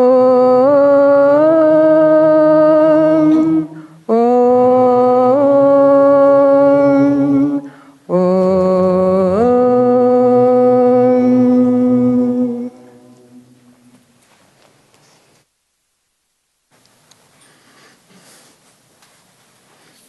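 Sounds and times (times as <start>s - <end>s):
person chanting long notes: 0.0s - 13.9s
breath: 3.8s - 4.0s, 7.7s - 8.0s, 17.4s - 18.6s.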